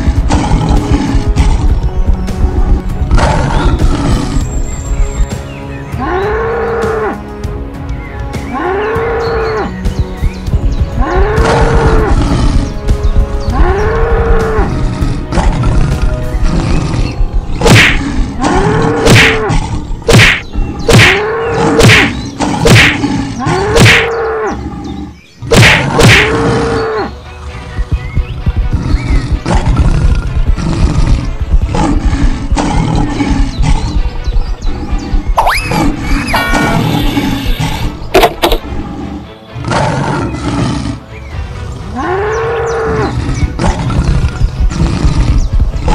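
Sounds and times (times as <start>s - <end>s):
sharp hits: 20.1s - 21.2s
cartoon cattle mooing: 35.4s - 37.9s.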